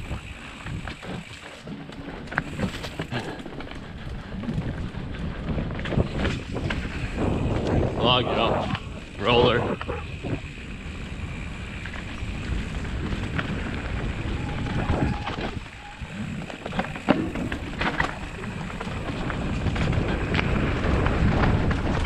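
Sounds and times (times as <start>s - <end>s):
tyres rumbling on dirt: 0.0s - 22.0s
wind on microphone: 2.4s - 22.0s
bike clattering knocks: 15.0s - 18.4s.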